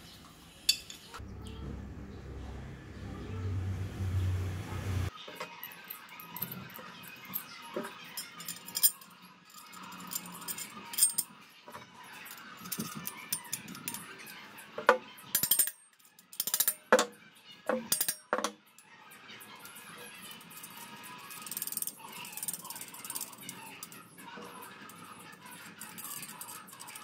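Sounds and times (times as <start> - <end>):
metal parts clinking: 5.3 - 14.7, 15.3 - 17.1, 17.7 - 18.5, 20.1 - 27.0.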